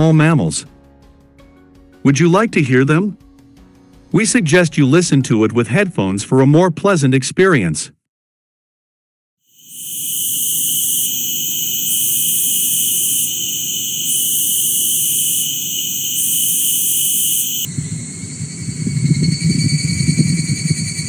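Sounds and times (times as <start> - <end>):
cicadas buzzing: 9.5 - 21.0
low rumble: 17.6 - 21.0.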